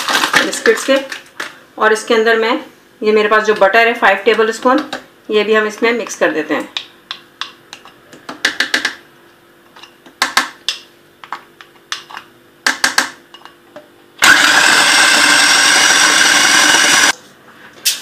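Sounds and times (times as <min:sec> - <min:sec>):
food processor motor grinding: 0:14.2 - 0:17.2.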